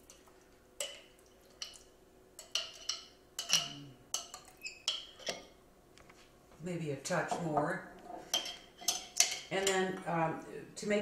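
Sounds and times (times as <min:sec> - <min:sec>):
spatula and jar clinking on saucepan: 0:02.4 - 0:05.5, 0:08.3 - 0:10.0.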